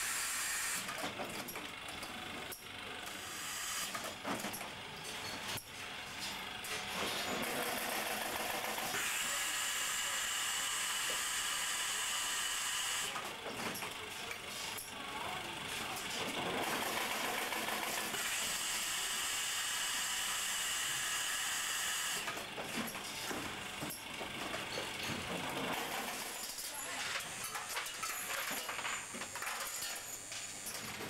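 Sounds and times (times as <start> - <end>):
factory machinery hissing drone: 3.1 - 4.0, 8.9 - 13.1, 18.2 - 22.3.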